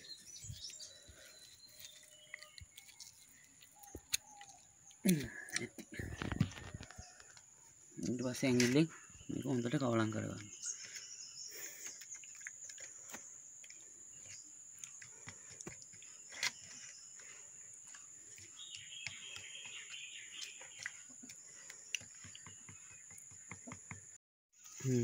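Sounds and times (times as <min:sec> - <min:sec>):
fingers squishing wet paste: 0:00.5 - 0:05.9, 0:11.9 - 0:23.9
bird-like chirping: 0:08.0 - 0:25.0.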